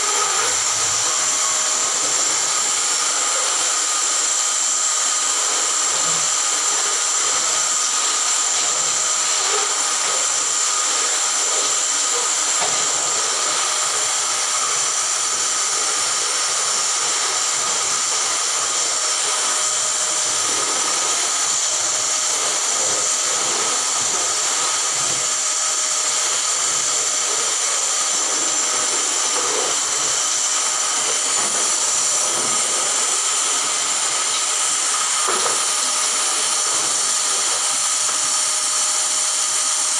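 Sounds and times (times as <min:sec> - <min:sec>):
vacuum cleaner running: 0:00.0 - 0:39.9
vacuum head on wooden floor: 0:26.3 - 0:37.2.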